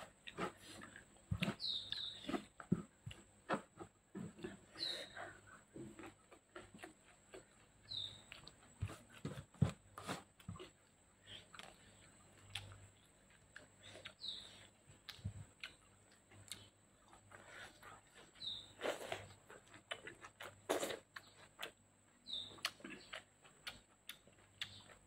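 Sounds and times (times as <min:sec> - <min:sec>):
high falling bird chirp: 0:01.5 - 0:02.4, 0:07.9 - 0:08.3
wet chewing and lip smacks: 0:10.4 - 0:25.0.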